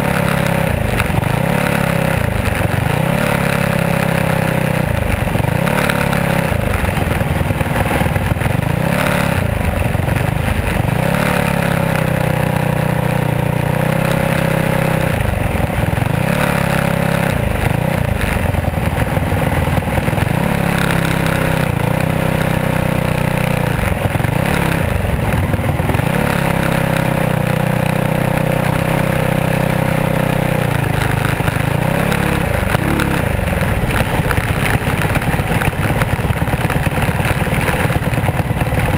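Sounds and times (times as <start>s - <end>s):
race car engine revving: 13.8s - 38.9s.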